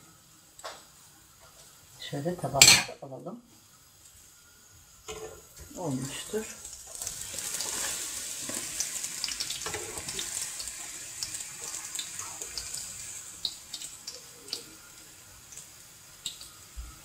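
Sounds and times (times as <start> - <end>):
food sizzling in hot oil: 0.1 - 17.0
oil crackles and pops: 5.1 - 17.0.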